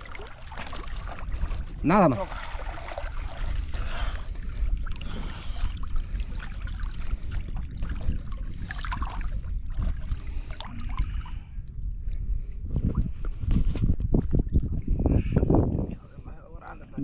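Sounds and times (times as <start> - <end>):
water sloshing and splashing: 0.0 - 11.4
wind rumble on microphone: 0.0 - 17.0.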